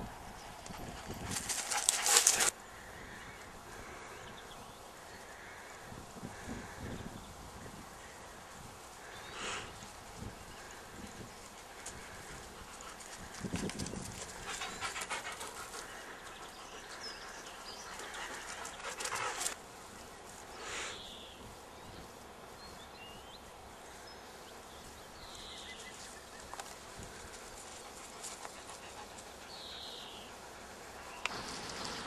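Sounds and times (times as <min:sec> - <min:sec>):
dog panting: 0:00.4 - 0:02.5, 0:14.2 - 0:19.6, 0:27.3 - 0:30.3.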